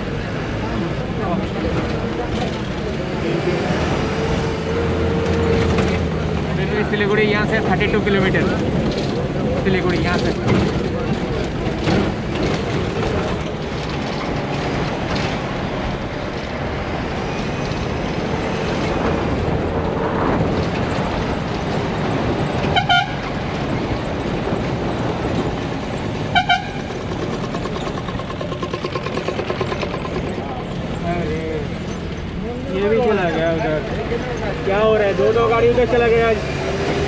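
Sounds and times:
bus engine and road noise: 0:00.0 - 0:37.0
vehicle horn honks: 0:22.8 - 0:23.2, 0:26.3 - 0:26.9.

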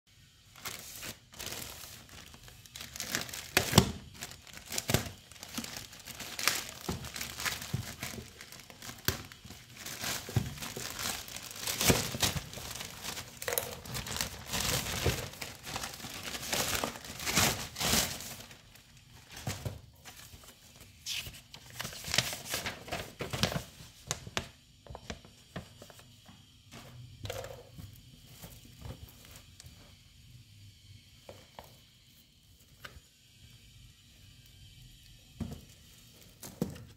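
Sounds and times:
plastic mailer crinkling and tearing: 0:00.5 - 0:20.4, 0:21.1 - 0:24.4.

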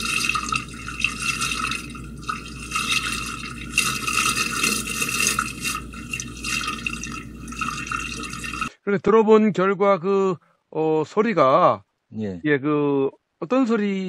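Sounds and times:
water sloshing in a drain: 0:00.0 - 0:08.7.

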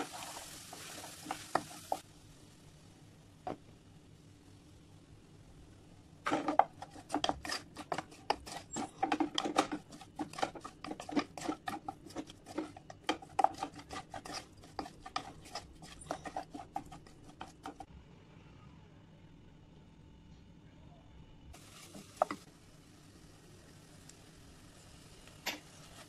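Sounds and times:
spatula scraping a saucepan: 0:00.0 - 0:02.0, 0:06.3 - 0:17.9.

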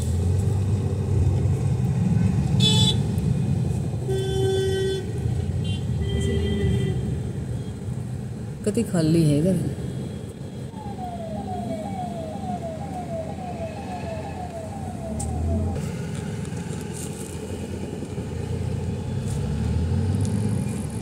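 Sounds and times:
car road and engine rumble: 0:00.0 - 0:21.0
falling electronic siren tone: 0:10.7 - 0:15.8.

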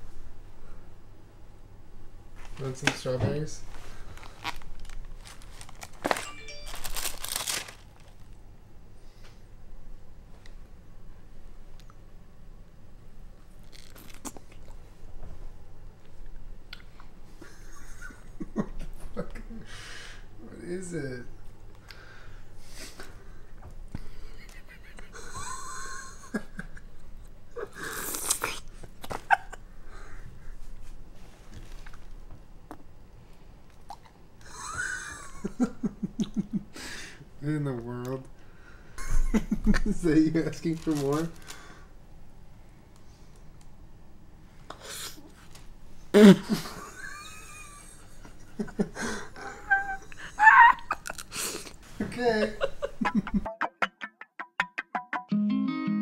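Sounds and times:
woman whining vocal noise: 0:49.4 - 0:51.2.

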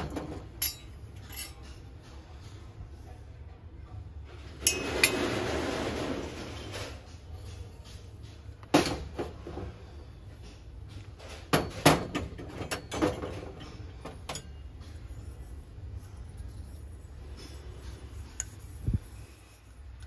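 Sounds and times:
steady low hum: 0:12.2 - 0:20.0.

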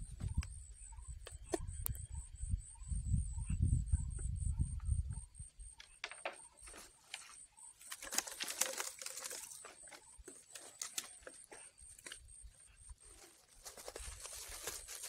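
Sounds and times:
plastic bag crinkling: 0:07.9 - 0:09.8, 0:13.1 - 0:15.0.

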